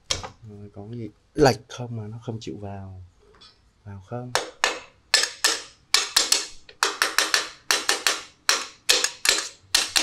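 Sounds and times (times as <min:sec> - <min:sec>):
hammer tapping on metal: 0:04.3 - 0:10.0.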